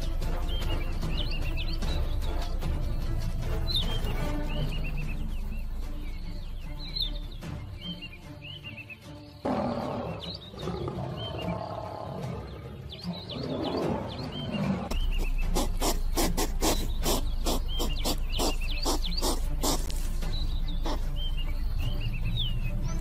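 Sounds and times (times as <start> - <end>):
big cat growling: 9.4 - 19.8.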